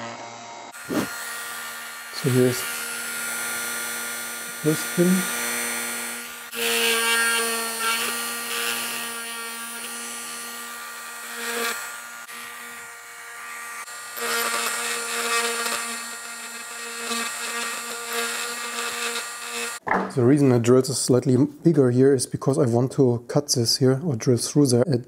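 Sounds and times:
rotary tool whining and grinding: 0.0s - 19.8s.

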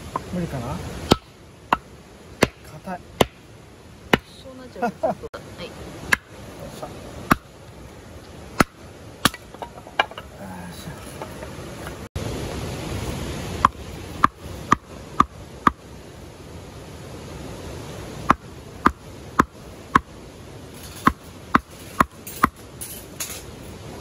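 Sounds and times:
hatchet chopping wood: 1.0s - 3.4s, 4.1s - 4.4s, 6.1s - 6.3s, 7.3s - 7.5s, 8.6s - 10.2s, 18.3s - 20.1s, 21.0s - 22.6s.

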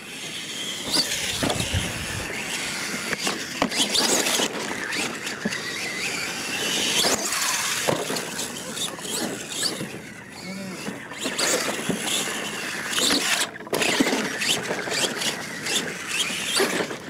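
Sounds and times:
toy truck motor whining: 0.0s - 17.0s
tyres scrabbling on dirt: 0.4s - 10.2s, 10.8s - 17.0s
sharp chassis crunches: 0.5s - 10.0s.

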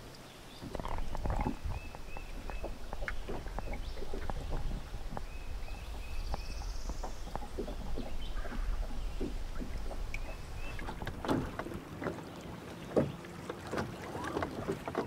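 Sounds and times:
waves lapping against boat hull: 0.0s - 15.0s
muffled underwater rumble: 0.6s - 11.9s.

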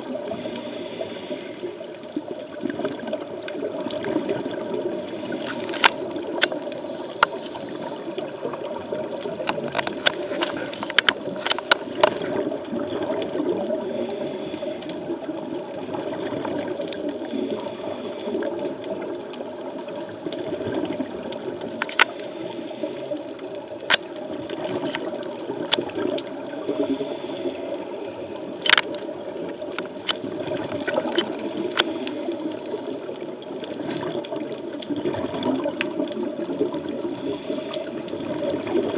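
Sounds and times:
regulator hiss: 0.0s - 2.2s, 3.8s - 6.2s, 7.0s - 8.2s, 13.7s - 15.2s, 16.2s - 18.8s, 21.9s - 23.5s, 26.5s - 28.3s, 31.3s - 33.2s, 37.0s - 38.4s
scuba regulator bubbling: 0.0s - 38.9s
sharp clicks: 5.4s - 7.4s, 9.4s - 12.2s, 21.8s - 22.3s, 28.6s - 29.0s, 31.2s - 32.2s.

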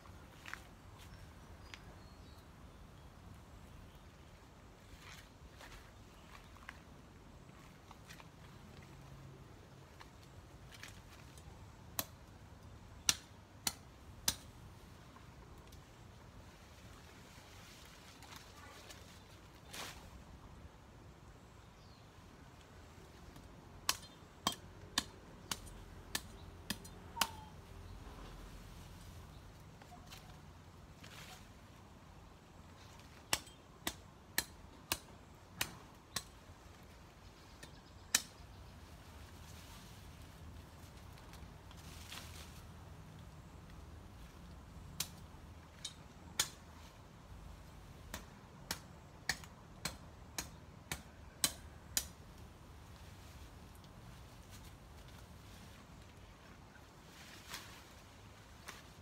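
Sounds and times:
pruning shears snipping stems: 23.3s - 27.5s, 48.0s - 52.5s.

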